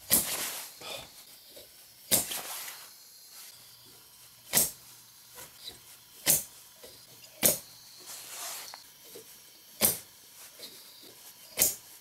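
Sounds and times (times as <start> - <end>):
small engine firing pops: 2.1 - 2.5, 4.5 - 4.8, 6.2 - 6.5, 7.4 - 7.7, 9.8 - 10.1.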